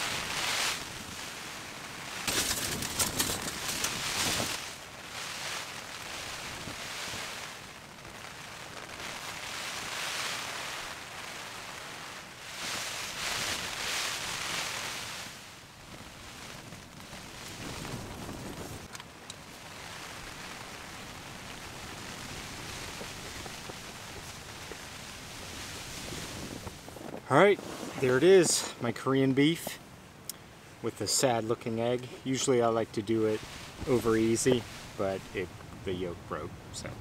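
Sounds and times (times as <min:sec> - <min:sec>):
gusty wind rushing: 0:12.5 - 0:30.8, 0:32.6 - 0:37.0.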